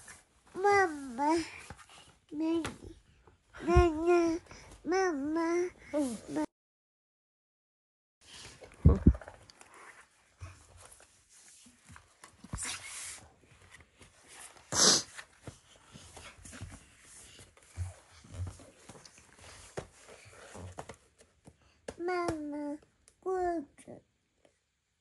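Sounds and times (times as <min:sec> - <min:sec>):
book pages rustling: 0:08.3 - 0:22.2.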